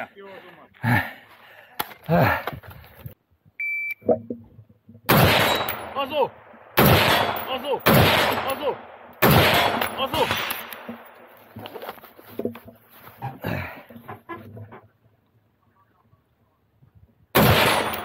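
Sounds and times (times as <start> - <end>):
shot timer start beep: 3.6 - 4.0
loud gunshots echoing: 5.1 - 10.9, 17.4 - 18.0.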